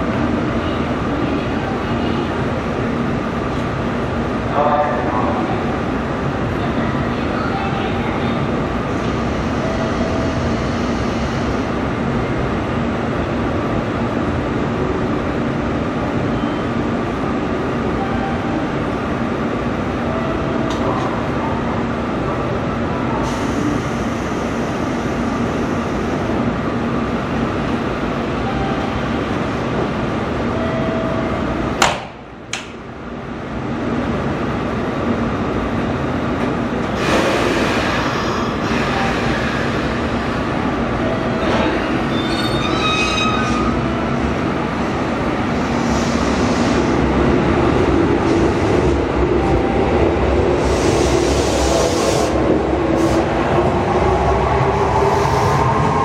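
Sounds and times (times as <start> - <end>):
hiss: 50.6 - 52.4.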